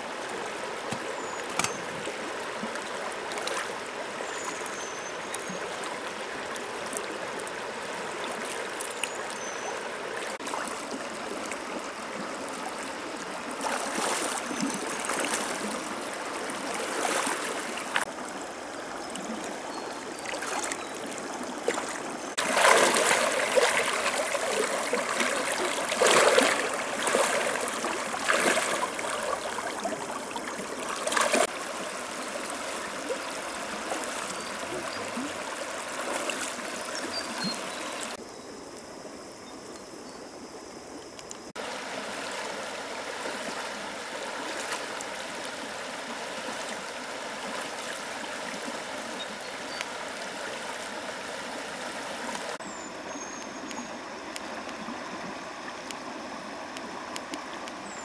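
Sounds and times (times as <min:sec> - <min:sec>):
shallow river running over rocks: 0:00.0 - 0:58.0
splashing in water: 0:00.8 - 0:06.0, 0:13.5 - 0:18.1, 0:19.1 - 0:31.6, 0:32.4 - 0:38.2.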